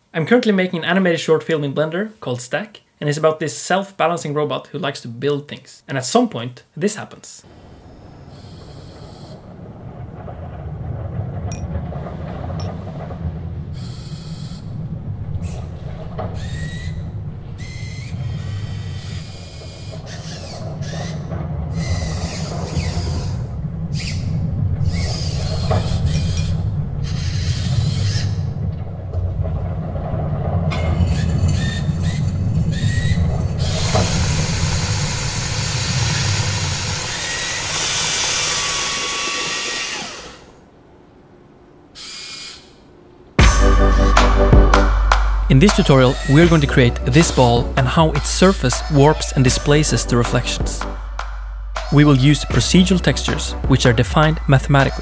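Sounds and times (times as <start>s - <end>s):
hissing wash: 7.4s - 44.3s
low rumble: 7.5s - 37.7s, 43.2s - 55.0s
mechanical whirs: 7.5s - 43.4s
rising whines: 7.5s - 55.0s
squeaks: 7.9s - 40.4s, 45.6s - 50.3s.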